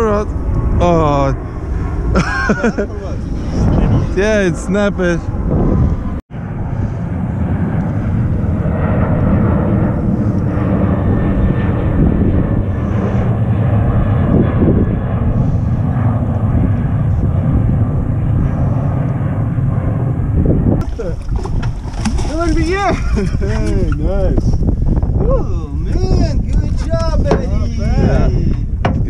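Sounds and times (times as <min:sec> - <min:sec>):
wind noise on microphone: 0:00.0 - 0:29.0
boat engine rumbling: 0:20.2 - 0:29.0.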